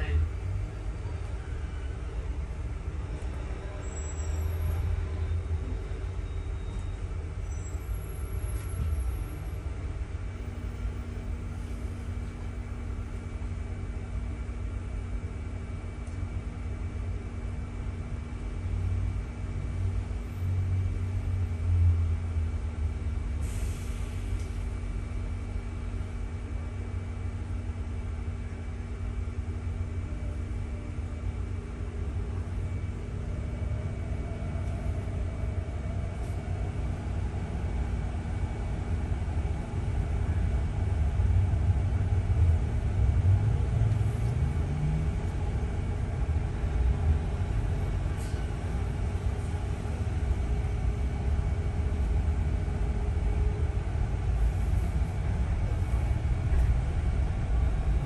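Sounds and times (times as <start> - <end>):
bus engine and road rumble: 0.0 - 58.0
constant hum: 6.8 - 58.0.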